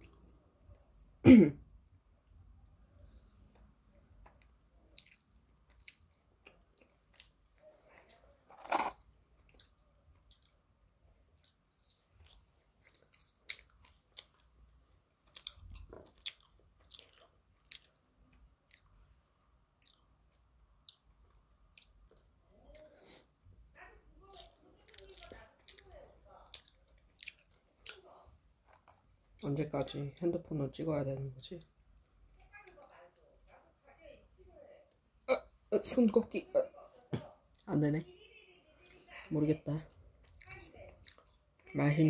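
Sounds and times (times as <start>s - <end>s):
person chewing french fries: 2.2s - 23.3s, 24.2s - 29.9s, 40.1s - 41.6s.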